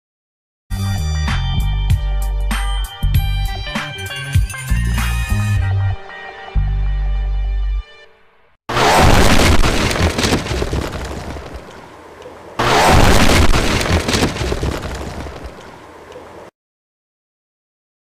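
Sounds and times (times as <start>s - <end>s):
explosion blast: 8.7s - 11.7s, 12.6s - 15.6s
crackle of falling debris: 8.8s - 11.9s, 12.6s - 15.8s.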